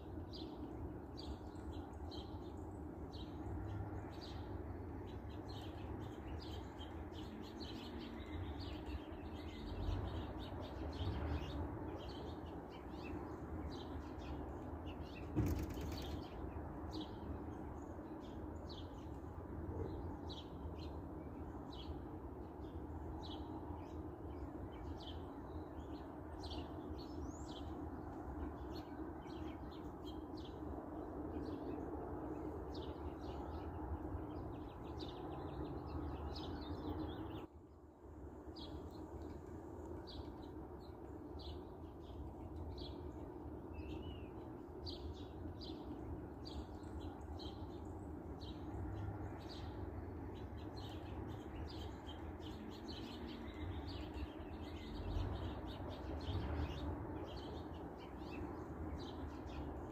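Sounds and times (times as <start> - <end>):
small birds chirping: 0.0 - 37.5, 38.3 - 59.9.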